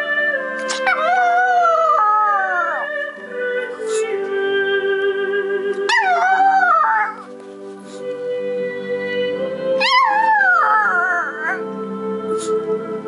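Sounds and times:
music with long held notes: 0.0s - 13.0s
dog howling: 0.6s - 3.0s, 5.9s - 7.3s, 9.8s - 11.6s.

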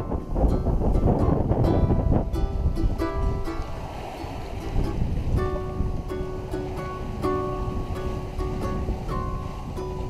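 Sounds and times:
ukulele music: 0.0s - 10.0s
wind and water rushing: 0.0s - 10.0s.

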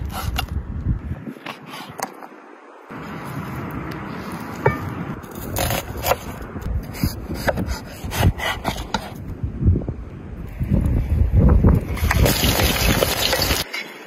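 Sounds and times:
knife slicing on wooden board: 4.7s - 6.3s.

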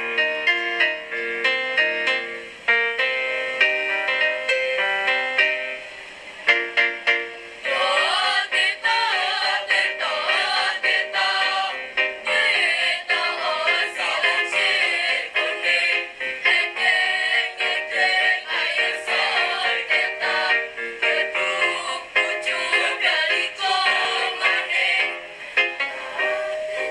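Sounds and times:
children's choir singing: 7.6s - 26.9s.

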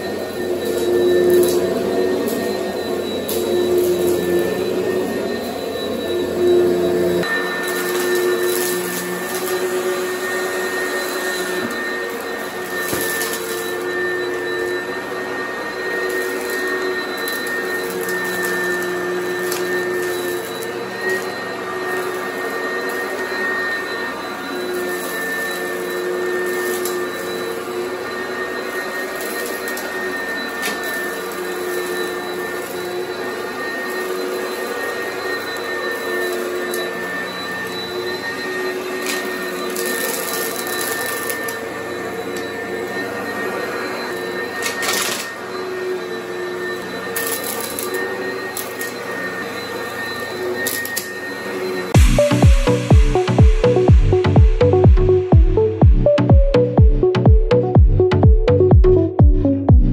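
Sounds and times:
vacuum cleaner motor humming: 0.0s - 59.9s.

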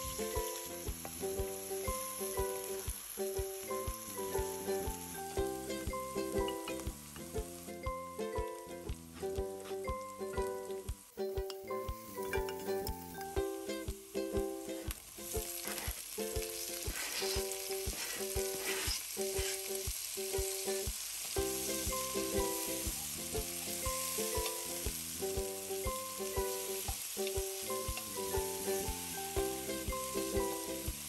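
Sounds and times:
background music with steady beat: 0.0s - 31.0s
food sizzling in oil: 0.0s - 31.0s.

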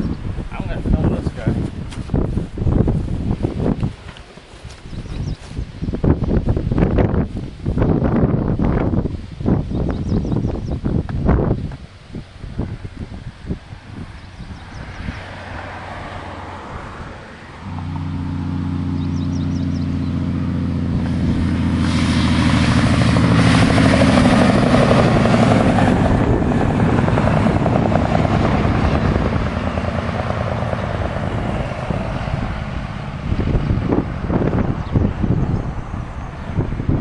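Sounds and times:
tyre and road noise: 0.0s - 37.0s
diesel truck engine: 12.4s - 37.0s.

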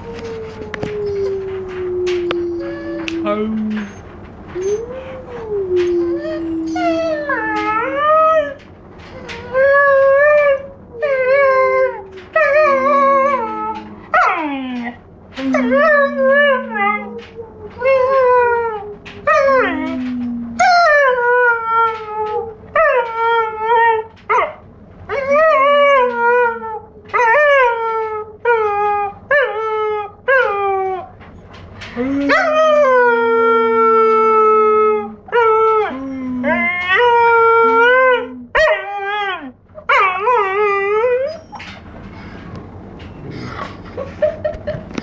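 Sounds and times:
puppy howling: 0.0s - 31.2s, 31.9s - 41.8s.

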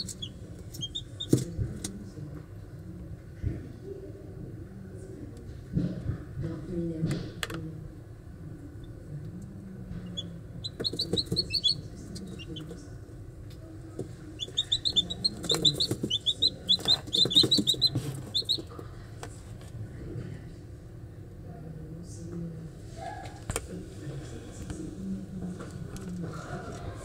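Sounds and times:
chicks peeping: 0.0s - 1.5s, 10.0s - 12.8s, 14.0s - 18.8s.

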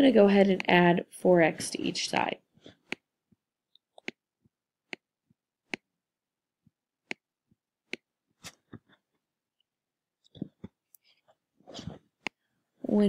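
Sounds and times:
stylus tapping on tablet screen: 2.8s - 3.4s, 4.0s - 4.2s, 4.8s - 5.9s, 6.6s - 9.0s.

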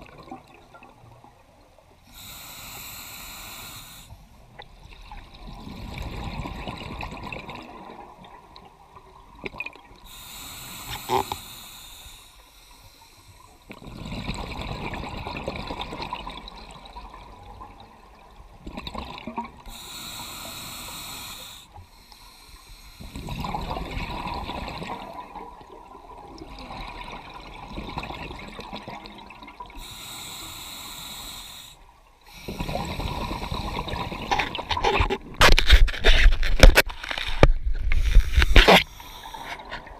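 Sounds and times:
regulator hissing inhalation: 2.1s - 4.2s, 10.1s - 13.6s, 19.7s - 23.4s, 29.8s - 33.9s, 37.9s - 39.7s.

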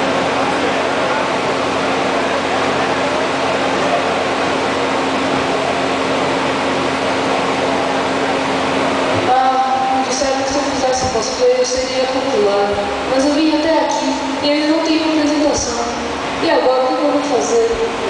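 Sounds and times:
constant low hum: 0.0s - 18.0s
distant voices murmuring: 0.0s - 18.0s.

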